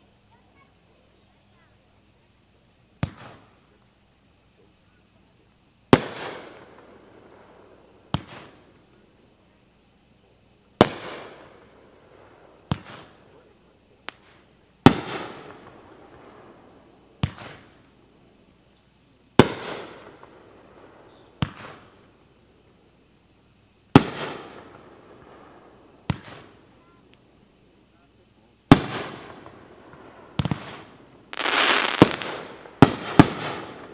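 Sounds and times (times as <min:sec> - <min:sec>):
firework launch thump: 0:03.0 - 0:03.4, 0:12.7 - 0:13.1, 0:17.2 - 0:17.6, 0:26.1 - 0:26.4.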